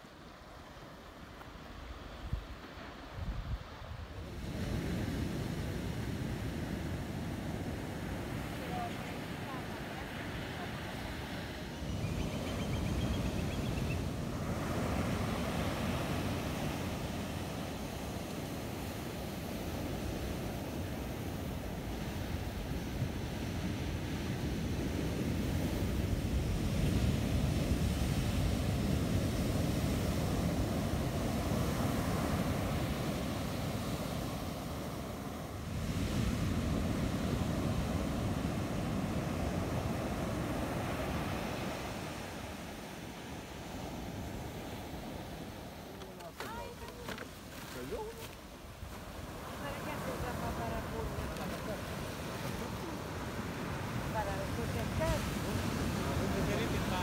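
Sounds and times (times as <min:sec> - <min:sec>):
ocean surf breaking on beach: 0:00.0 - 0:57.0
wind rumbling on microphone: 0:01.9 - 0:57.0
wind noise on microphone: 0:02.2 - 0:08.4.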